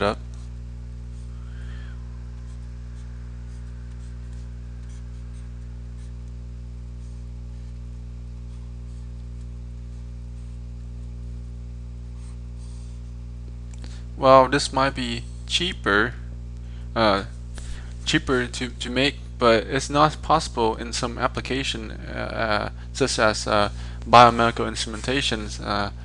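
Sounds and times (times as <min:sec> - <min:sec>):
mains hum: 0:00.0 - 0:26.0.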